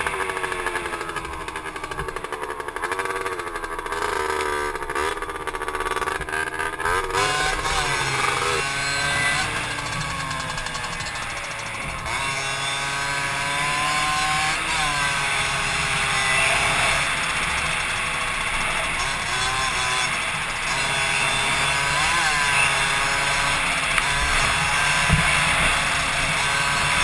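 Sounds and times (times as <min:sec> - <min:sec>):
moped engine running: 0:00.0 - 0:27.0.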